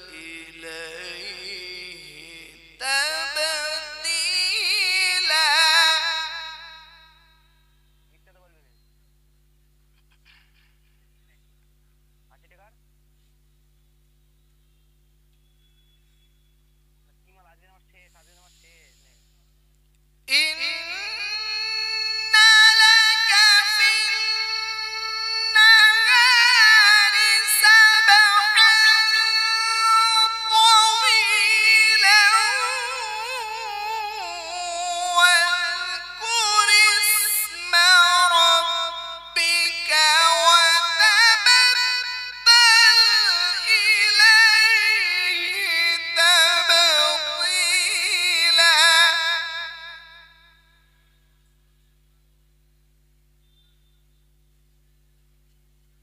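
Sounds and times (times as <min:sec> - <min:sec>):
man chanting recitation: 0:00.0 - 0:06.8, 0:20.3 - 0:50.0.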